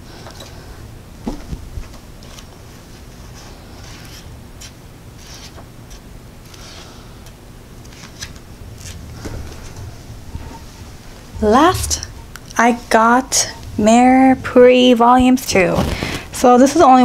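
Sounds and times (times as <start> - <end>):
pages flipping: 3.8 - 6.8, 7.8 - 9.3.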